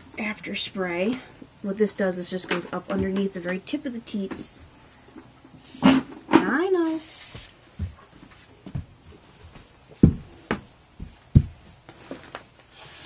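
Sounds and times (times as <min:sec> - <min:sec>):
spray hiss: 0:05.6 - 0:06.2, 0:06.8 - 0:07.6, 0:12.7 - 0:13.0.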